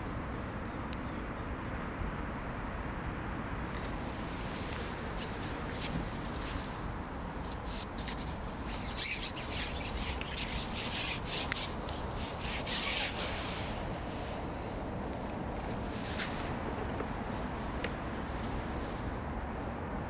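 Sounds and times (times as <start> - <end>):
fishing pole rasping scrapes: 7.5 - 14.4.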